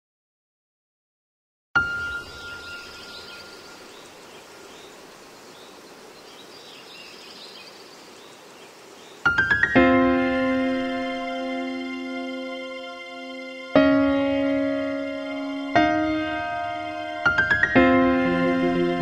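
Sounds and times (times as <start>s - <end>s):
piano-like keyboard music: 1.8s - 3.7s, 9.3s - 19.0s.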